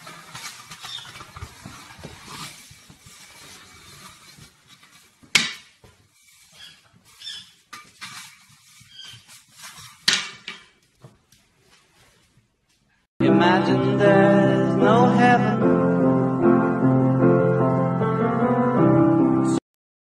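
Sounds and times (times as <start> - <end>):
soft rustles: 0.0 - 10.1, 10.8 - 13.1.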